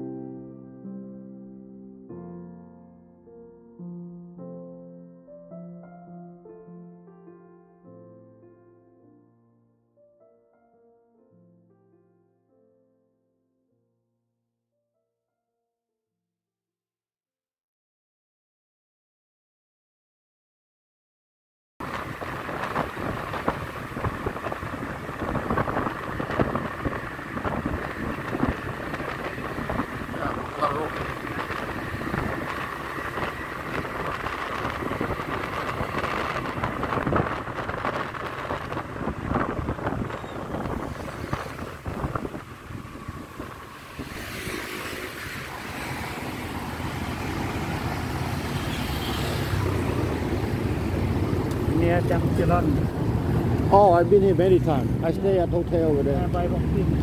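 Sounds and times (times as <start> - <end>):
wind buffeting microphone: 21.8 - 48.5
motorbike engine and road noise: 21.8 - 57.0.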